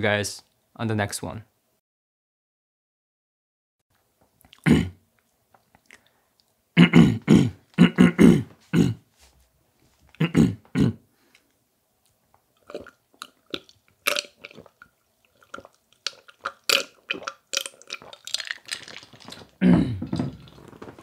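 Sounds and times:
person making vocal sounds: 19.3 - 20.5.

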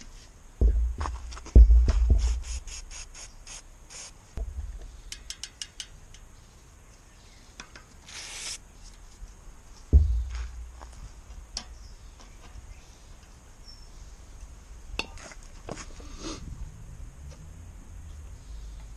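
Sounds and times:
low thumps of wheel handling: 0.6 - 2.4, 9.9 - 11.8
spray hiss: 2.0 - 4.3, 8.0 - 8.6.

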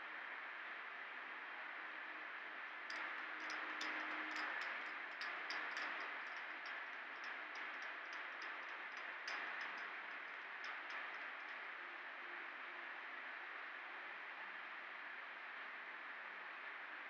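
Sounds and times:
steady hiss: 1.5 - 16.8
faint irregular ticking clicks: 2.9 - 12.3.

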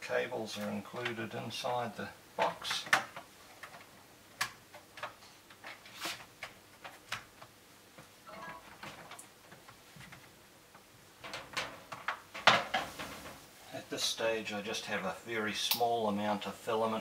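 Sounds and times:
hands handling cables clicking: 2.4 - 8.1.

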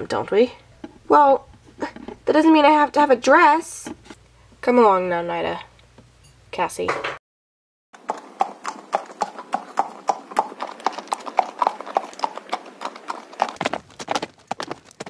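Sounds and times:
horse hooves clip-clopping: 8.0 - 15.0.

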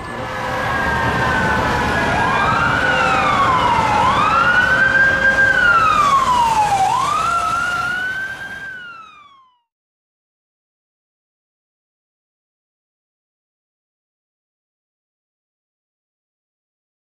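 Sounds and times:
emergency siren wailing: 0.0 - 9.7.

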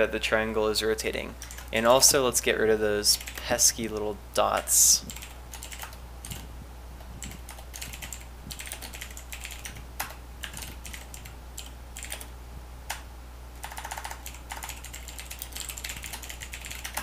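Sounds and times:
low steady hum: 0.0 - 17.0
computer keyboard typing: 1.4 - 1.8, 5.0 - 6.5, 7.2 - 12.3, 13.6 - 17.0.

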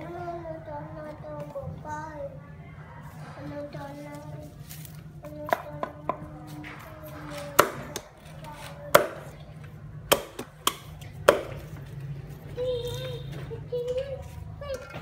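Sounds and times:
knife chopping on wooden block: 10.1 - 11.6.

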